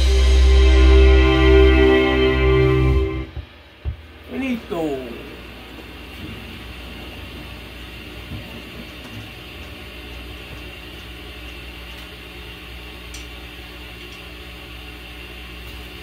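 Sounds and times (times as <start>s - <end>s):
low electrical hum with hiss: 0.7s - 16.0s.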